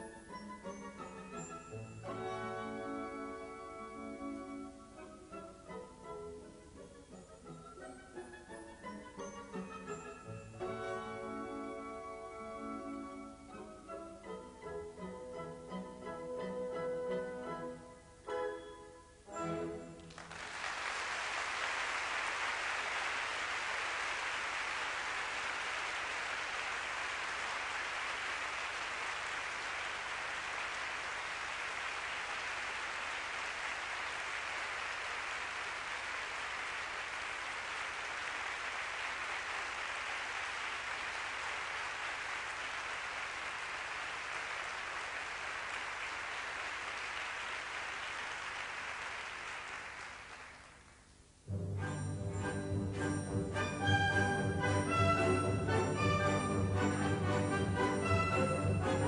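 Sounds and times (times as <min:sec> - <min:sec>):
audience applauding: 0:20.0 - 0:51.0.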